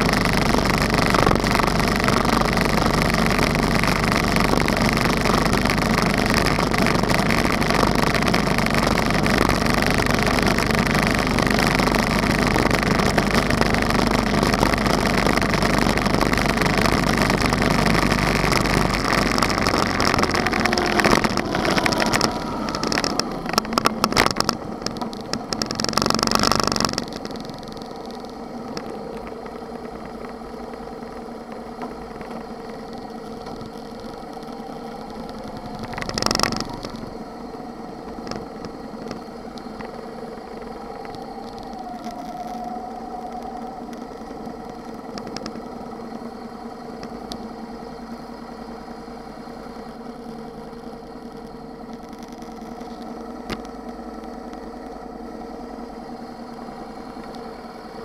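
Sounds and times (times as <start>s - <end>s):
loud rush of noise: 0.0s - 29.7s
motorcycle engine running: 0.0s - 58.0s.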